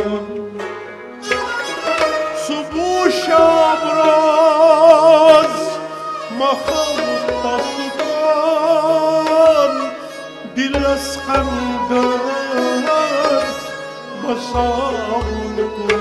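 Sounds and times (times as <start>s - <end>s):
bowed string instrument: 0.0s - 16.0s
harmonium: 0.0s - 16.0s
man singing: 0.0s - 16.0s
plucked lute: 0.0s - 16.0s.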